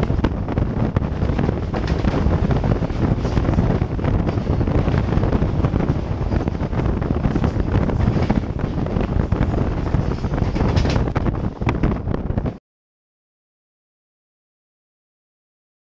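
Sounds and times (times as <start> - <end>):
train wheels rumbling on track: 0.0 - 12.6
wind buffeting microphone: 0.0 - 12.6.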